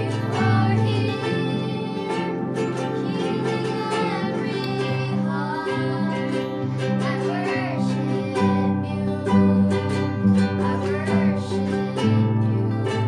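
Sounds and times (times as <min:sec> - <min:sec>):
guitar accompaniment: 0:00.0 - 0:13.0
person singing: 0:00.0 - 0:13.0.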